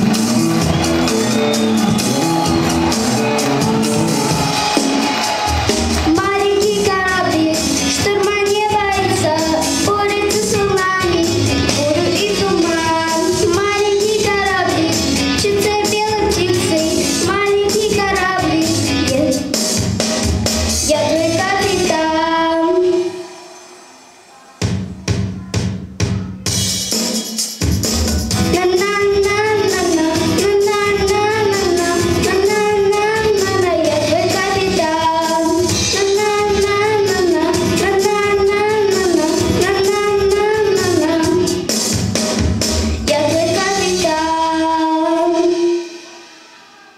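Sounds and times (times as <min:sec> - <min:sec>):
backing track with drum beat: 0:00.0 - 0:22.2, 0:22.9 - 0:46.9
girl singing into a microphone: 0:06.1 - 0:19.4, 0:20.9 - 0:23.1, 0:28.5 - 0:41.6, 0:43.1 - 0:46.9.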